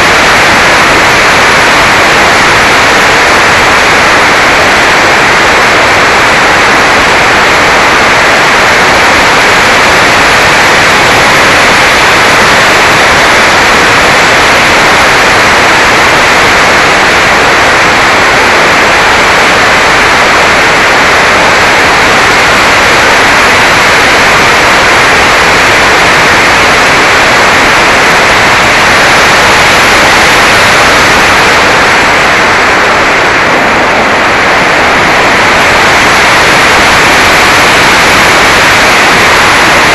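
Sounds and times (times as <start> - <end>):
wind over microphone: 0.0 - 39.9.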